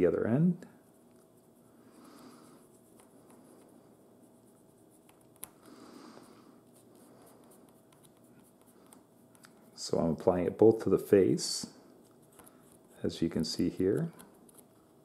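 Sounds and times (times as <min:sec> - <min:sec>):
pencil scratching on wood: 0:06.7 - 0:09.0.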